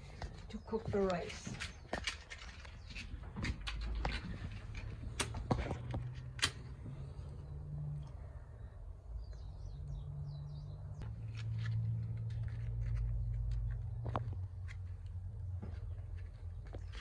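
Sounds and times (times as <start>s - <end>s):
sharp clicks and light knocks: 0.1s - 6.6s
bird chirping: 7.0s - 11.1s.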